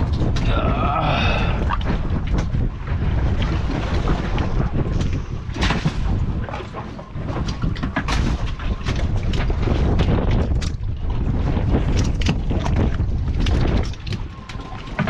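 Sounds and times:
fish slapping on boat deck: 0.0 - 10.9
wind rumbling on microphone: 0.0 - 15.0.

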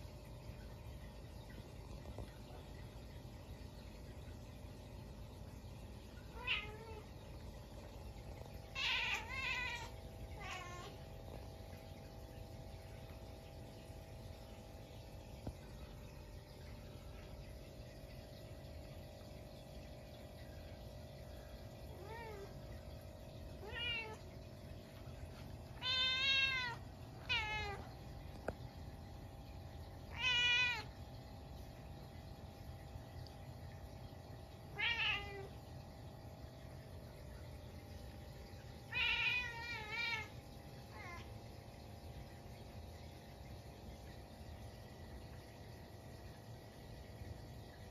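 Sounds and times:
cat meowing: 8.8 - 11.0, 25.8 - 27.8, 30.1 - 30.9.

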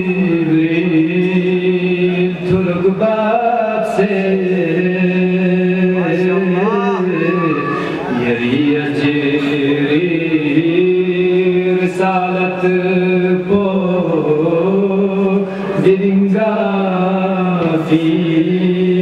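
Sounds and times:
man chanting into a microphone: 0.0 - 19.0.

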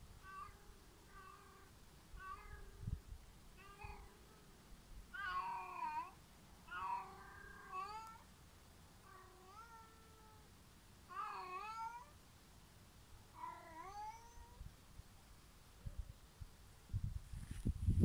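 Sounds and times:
cat meowing: 0.2 - 3.0, 3.6 - 4.4, 5.2 - 8.2, 9.0 - 10.5, 11.1 - 12.1, 13.4 - 14.6.

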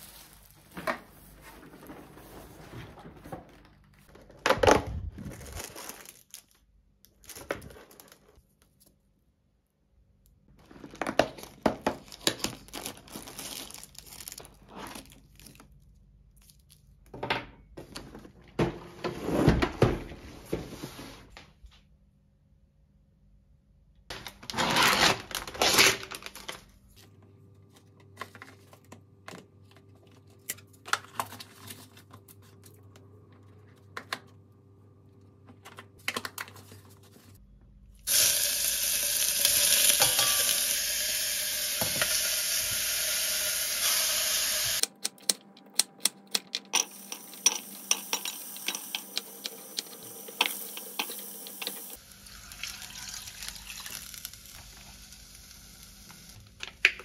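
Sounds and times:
meat sizzling in a saucepan: 38.1 - 44.8, 46.8 - 56.4.

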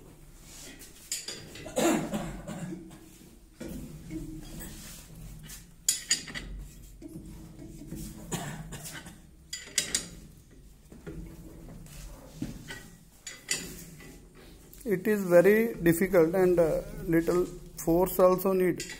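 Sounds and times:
spanner clinking on bearing puller: 5.9 - 6.6, 9.5 - 10.2.

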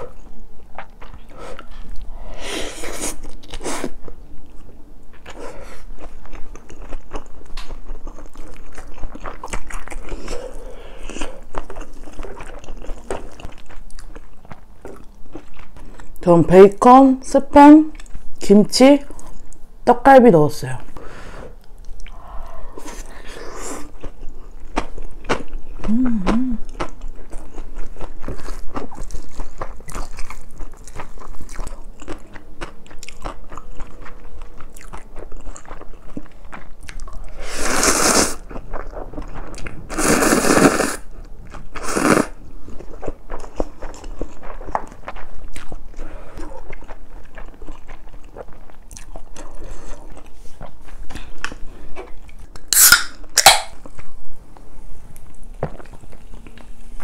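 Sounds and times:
chewing and crunchy bites: 0.0 - 2.2, 2.8 - 16.3, 21.6 - 54.2
loud noodle slurps: 37.4 - 38.4, 39.9 - 41.1, 41.8 - 42.4.

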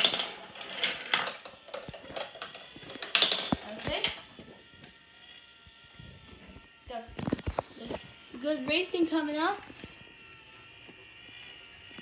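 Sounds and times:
marbles clattering on plastic track: 0.0 - 4.2.

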